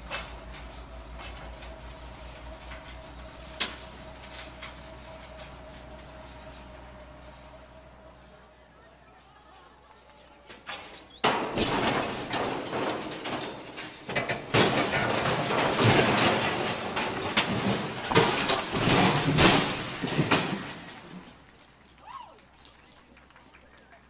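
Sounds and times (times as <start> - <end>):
crane crashing down: 10.5 - 21.6.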